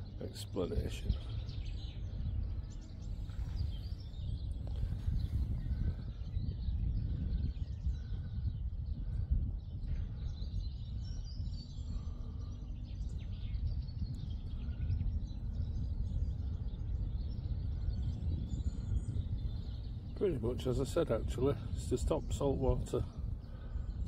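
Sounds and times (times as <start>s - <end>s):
small birds chirping and singing: 0.0s - 24.0s
steady low rumble: 0.0s - 24.0s.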